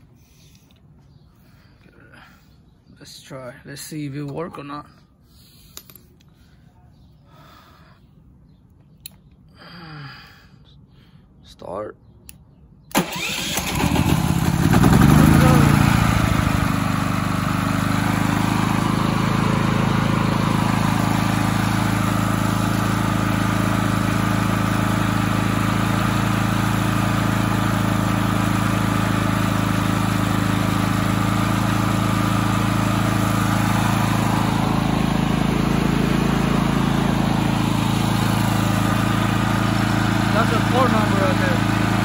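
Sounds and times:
generator engine running: 12.9 - 42.0.

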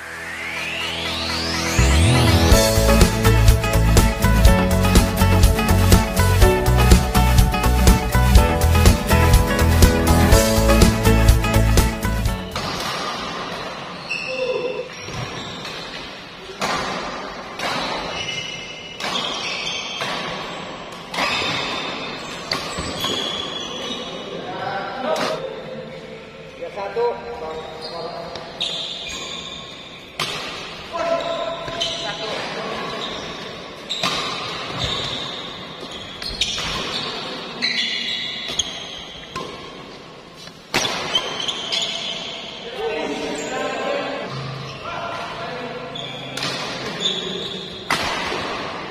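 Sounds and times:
shoes squeaking on floor: 12.3 - 16.2, 18.0 - 24.2, 27.4 - 30.2, 30.9 - 45.2, 45.8 - 47.9
rackets hitting shuttlecock: 12.4 - 13.7, 16.5 - 23.4, 30.2 - 30.9, 34.0 - 35.1, 36.2 - 37.4, 38.4 - 41.9, 46.4 - 47.0, 47.9 - 48.8
rackets striking shuttlecock: 30.2 - 30.8, 34.0 - 34.8, 40.5 - 41.6.

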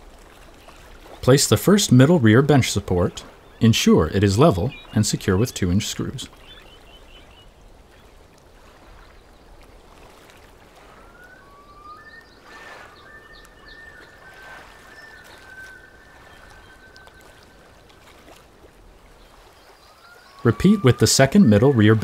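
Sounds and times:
faint thin whistling tones: 10.8 - 17.8.

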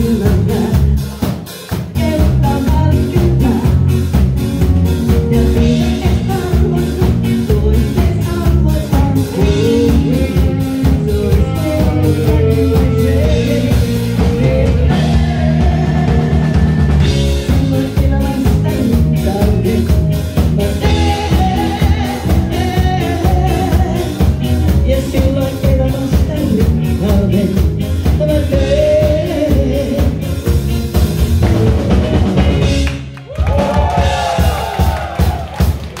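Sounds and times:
woman singing lead: 0.0 - 4.2, 5.1 - 30.5
live pop-rock band playing: 0.0 - 36.0.

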